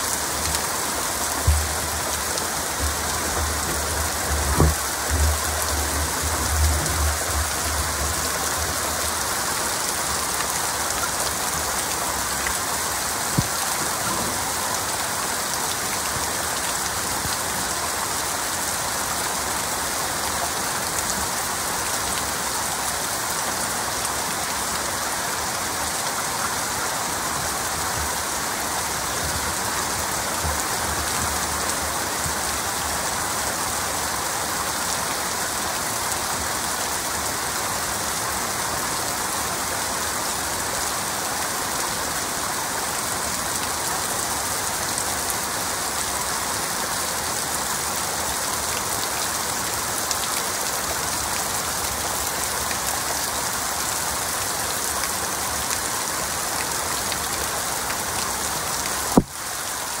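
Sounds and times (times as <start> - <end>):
heavy rain falling: 0.0 - 60.0.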